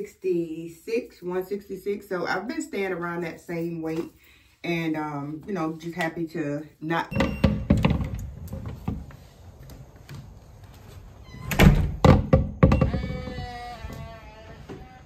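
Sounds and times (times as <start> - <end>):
knocks and thumps: 7.1 - 9.1, 11.6 - 13.5.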